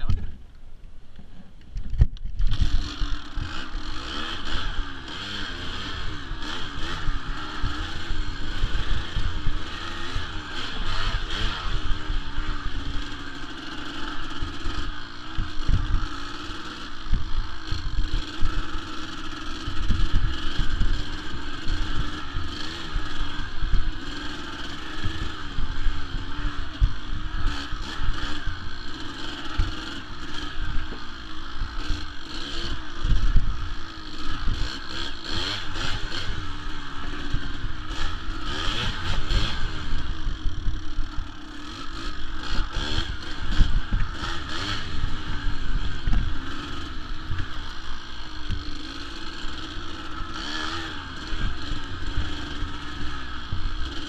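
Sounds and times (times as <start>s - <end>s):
dirt bike engine revving: 2.2s - 54.0s.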